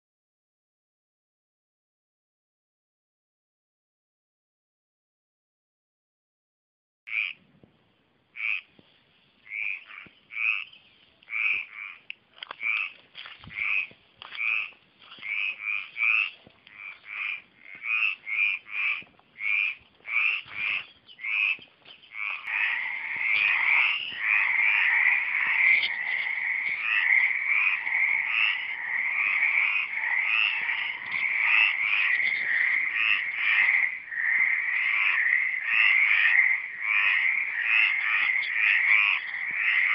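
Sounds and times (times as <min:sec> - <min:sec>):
frogs croaking: 0:07.1 - 0:07.4, 0:08.3 - 0:08.8, 0:09.4 - 0:39.9.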